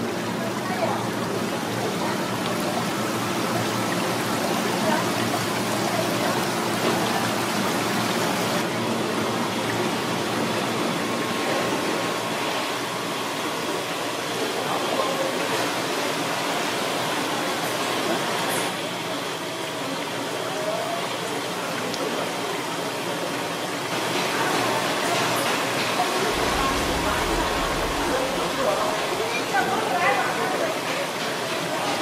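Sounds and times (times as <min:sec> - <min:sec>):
running water in tanks: 0:00.0 - 0:32.0.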